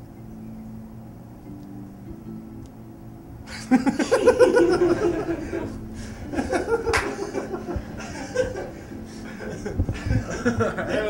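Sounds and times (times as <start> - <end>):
people laughing: 3.5 - 11.0.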